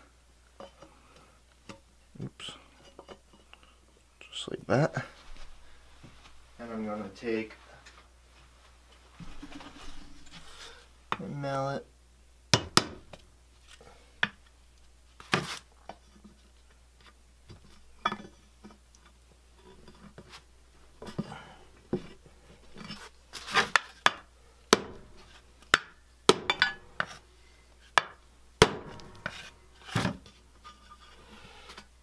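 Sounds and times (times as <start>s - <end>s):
parts rustling: 7.6s - 10.9s, 19.6s - 24.1s.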